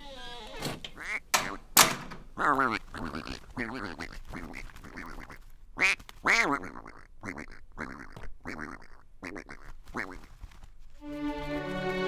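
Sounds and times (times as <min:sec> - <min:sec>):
cartoon duck quacking: 0:02.4 - 0:10.3.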